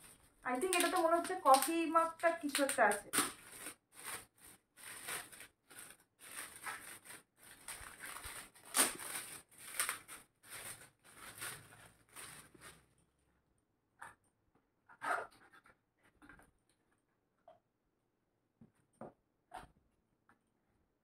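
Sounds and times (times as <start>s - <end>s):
metallic gift wrap crinkling: 0.0s - 13.0s.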